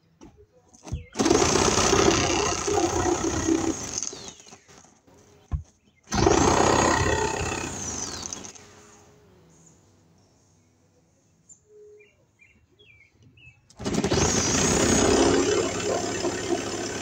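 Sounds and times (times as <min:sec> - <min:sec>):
saw motor winding down: 0:01.2 - 0:04.4, 0:06.1 - 0:08.6, 0:13.8 - 0:17.0
electric saw cutting: 0:01.2 - 0:04.5, 0:06.1 - 0:08.6, 0:13.8 - 0:17.0.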